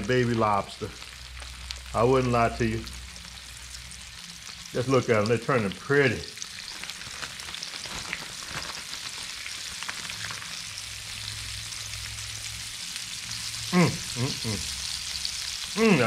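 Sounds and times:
prawns deep-frying sizzle: 0.0 - 16.0.

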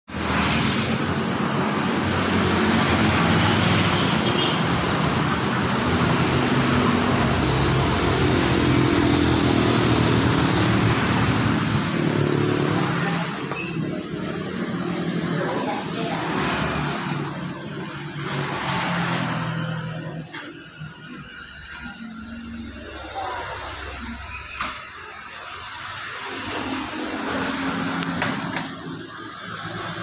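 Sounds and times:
road noise: 0.1 - 30.0
vehicles passing: 0.1 - 30.0.

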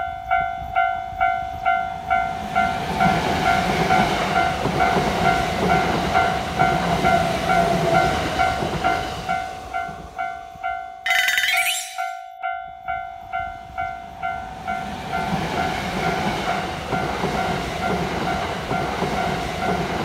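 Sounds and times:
crossing signal electronic bell: 10.9 - 13.1.

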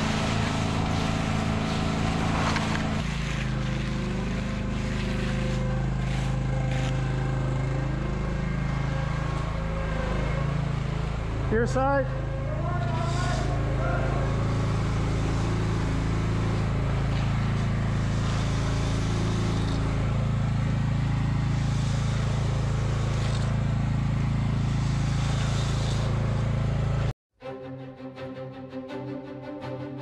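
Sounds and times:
engine running steadily: 0.0 - 27.1
person speaking: 11.5 - 14.5.

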